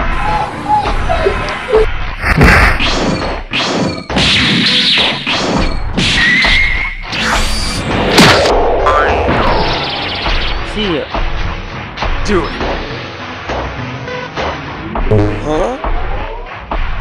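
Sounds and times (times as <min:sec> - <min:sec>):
cartoon punch and kick impacts: 0:02.2 - 0:06.7, 0:08.1 - 0:08.5, 0:15.1 - 0:15.8.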